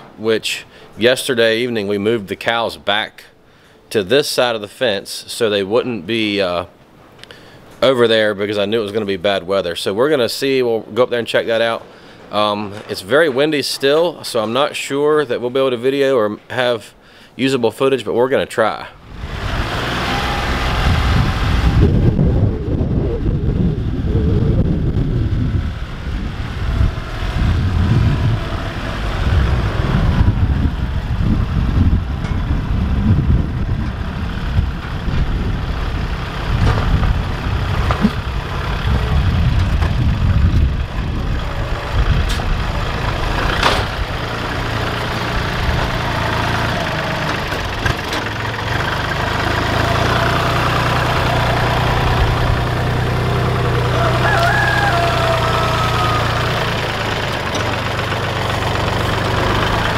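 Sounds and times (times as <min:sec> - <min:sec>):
tractor diesel engine running: 0:19.0 - 0:59.9.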